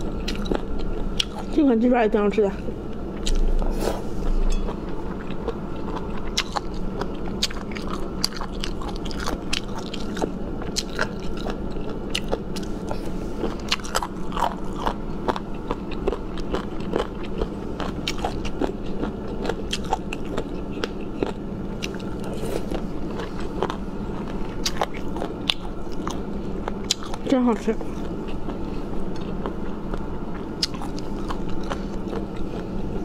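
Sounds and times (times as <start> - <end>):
person chewing with sharp clicks: 13.7 - 22.3, 23.2 - 27.2, 29.1 - 32.6.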